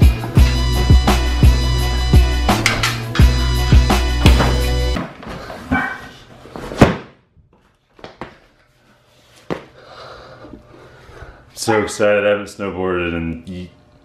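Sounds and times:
background music: 0.0s - 5.0s.

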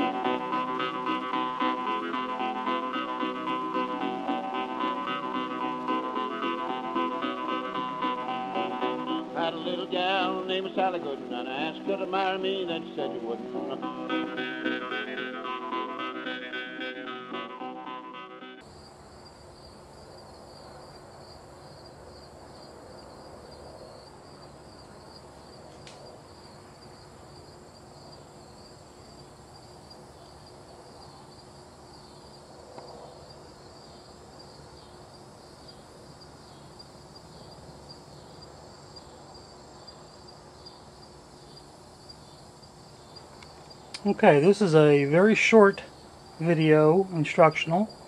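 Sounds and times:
crickets chirping: 0.0s - 48.0s
insects trilling: 0.0s - 48.0s
faint click: 25.7s - 26.0s.

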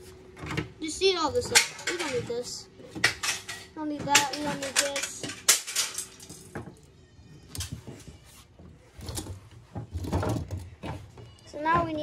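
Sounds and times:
metal and plastic parts clattering: 1.3s - 6.9s, 8.9s - 11.4s.

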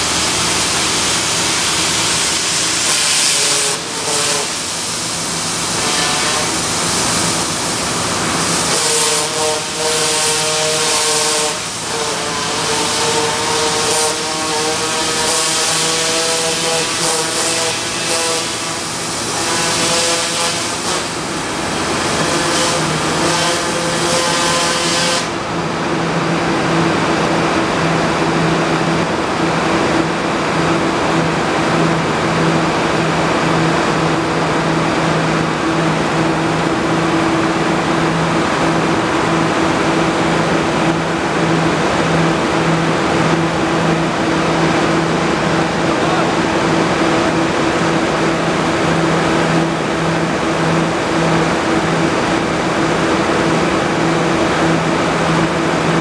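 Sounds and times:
water jet hissing: 0.0s - 25.4s
pump engine droning: 0.0s - 56.0s.

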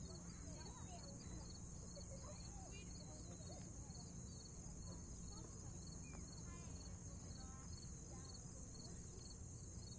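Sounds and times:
children calling and shouting: 0.0s - 4.1s
crickets trilling: 0.0s - 9.9s.

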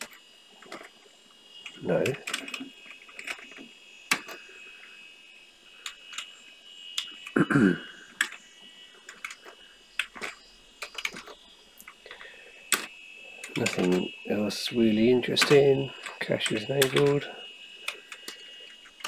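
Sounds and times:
computer humming: 0.0s - 19.0s
keyboard keys clicking: 15.3s - 17.3s.

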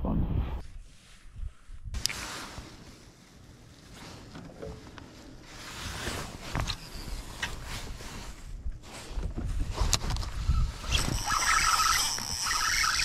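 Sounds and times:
wind rumbling on microphone: 0.0s - 2.0s, 5.8s - 13.0s
fishing reel clicks: 10.9s - 13.0s.

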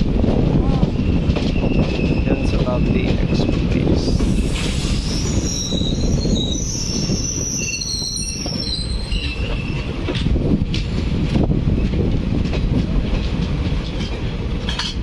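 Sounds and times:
train coaches rumbling: 0.0s - 15.0s
train wheels squealing: 0.9s - 10.0s.

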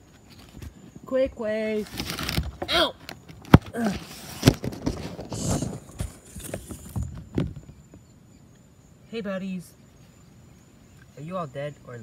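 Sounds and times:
handling knocks and rustles: 0.0s - 8.1s
high insect trill: 0.0s - 12.0s
person grunting: 2.7s - 3.0s.

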